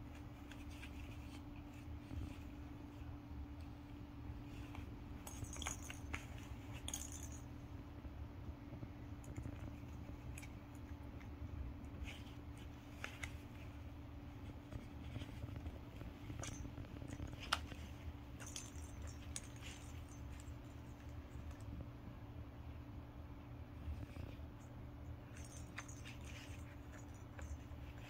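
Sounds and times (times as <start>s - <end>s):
low steady hum: 0.0s - 28.0s
toy ball bell jingling: 5.3s - 7.5s, 18.4s - 20.7s.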